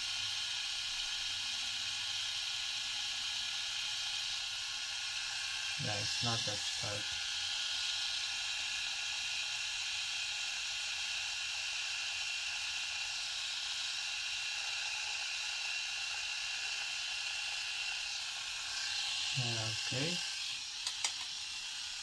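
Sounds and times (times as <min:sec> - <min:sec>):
electric shaver buzzing: 0:05.4 - 0:08.3, 0:17.2 - 0:22.0.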